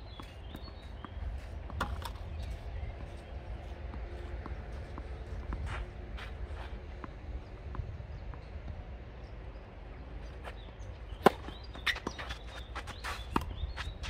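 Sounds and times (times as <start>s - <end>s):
footsteps on clay court: 0.0s - 14.0s
tennis racket hitting ball: 11.2s - 13.6s.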